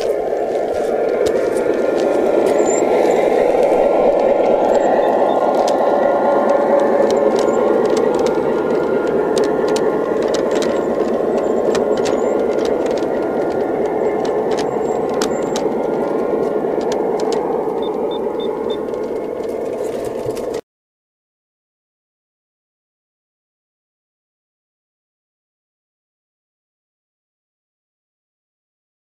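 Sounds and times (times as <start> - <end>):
model train wheels rumbling: 0.0 - 20.6.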